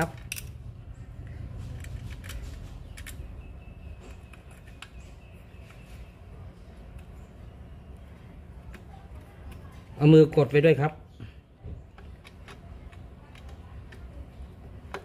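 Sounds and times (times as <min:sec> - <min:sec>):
low background rumble: 0:00.1 - 0:10.0.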